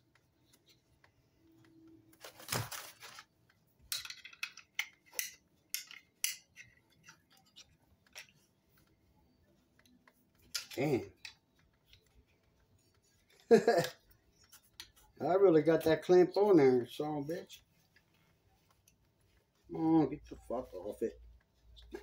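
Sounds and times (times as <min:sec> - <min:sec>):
metal clicking and clinking: 0:03.9 - 0:08.9.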